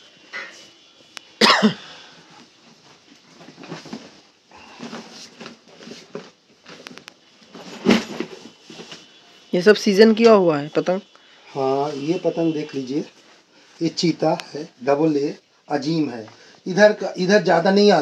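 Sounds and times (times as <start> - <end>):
suitcases scuffing and rustling: 2.4 - 9.5.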